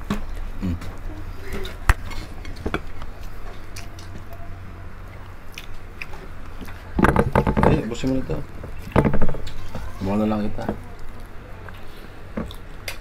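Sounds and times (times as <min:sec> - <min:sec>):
small crackles and clicks: 0:00.0 - 0:04.4
steady low hum: 0:00.0 - 0:13.0
crispy meat torn and chewed: 0:00.3 - 0:06.9.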